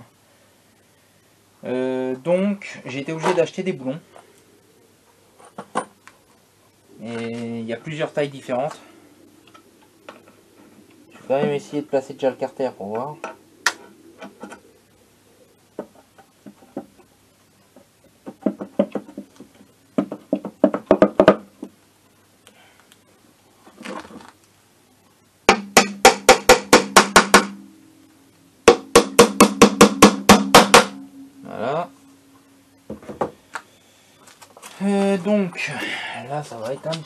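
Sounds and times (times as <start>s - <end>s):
hammer striking metal cover: 25.5s - 27.7s, 28.7s - 31.3s.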